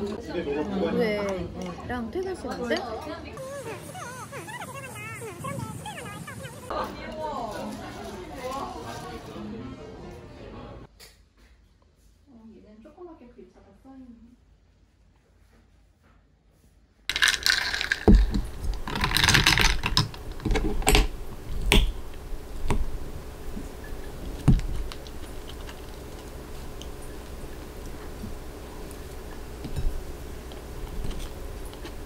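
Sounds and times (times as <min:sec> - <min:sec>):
low steady hum: 0:17.1 - 0:32.0
objects knocking and clicking: 0:17.1 - 0:32.0.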